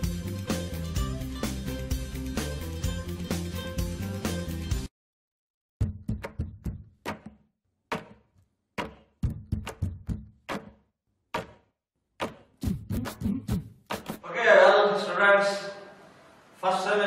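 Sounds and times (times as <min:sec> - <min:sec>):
sharp percussive knocks: 0:05.8 - 0:13.2.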